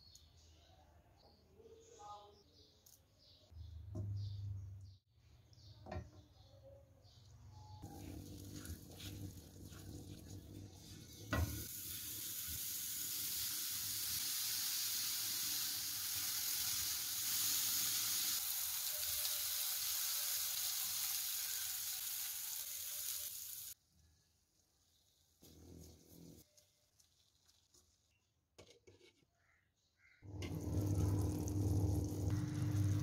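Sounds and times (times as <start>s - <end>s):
kebabs sizzling in oil: 7.8s - 28.2s, 30.2s - 33.0s.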